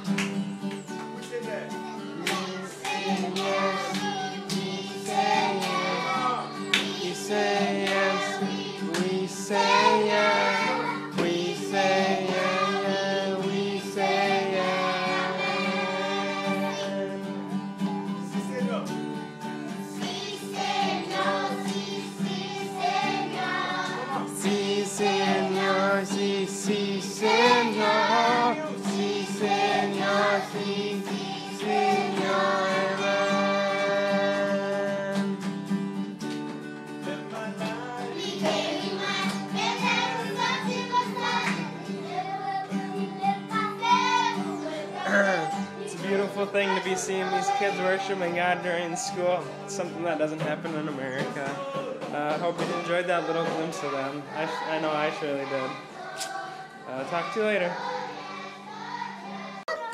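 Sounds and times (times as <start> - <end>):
strummed guitar: 0.0 - 59.9
children singing: 2.0 - 17.4, 19.7 - 35.3, 37.9 - 50.0, 52.4 - 59.9.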